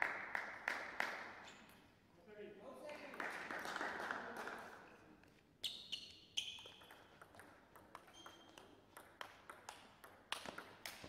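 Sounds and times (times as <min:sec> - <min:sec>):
table tennis ball bouncing: 0:06.4 - 0:11.0.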